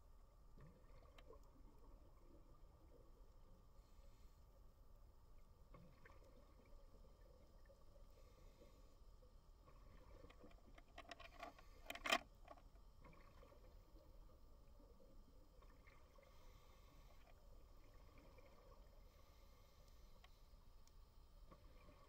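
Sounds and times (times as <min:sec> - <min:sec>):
faint low underwater hum: 0:00.0 - 0:22.0
clicks and crackles: 0:10.0 - 0:13.3.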